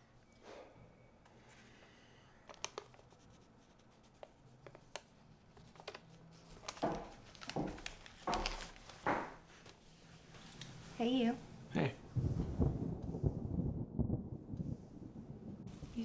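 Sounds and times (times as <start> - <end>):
paper rustling: 2.4 - 10.8
pencil scratching on paper: 3.0 - 4.8.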